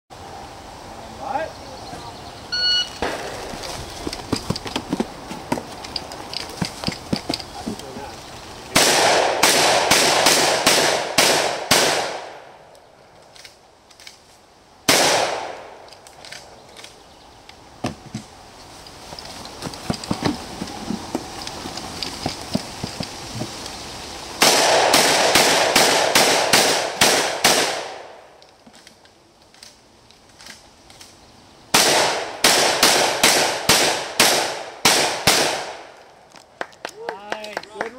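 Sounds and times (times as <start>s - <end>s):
shot timer beep: 2.6s - 3.0s
shotgun shots: 3.0s - 3.4s, 8.7s - 12.5s, 14.9s - 15.8s, 24.4s - 28.2s, 31.7s - 35.9s.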